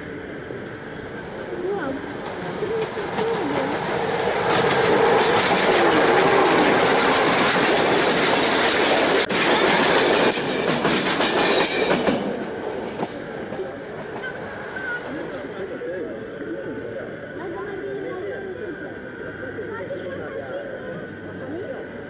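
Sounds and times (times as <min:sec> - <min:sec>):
model train wheels rattling: 0:02.0 - 0:12.4.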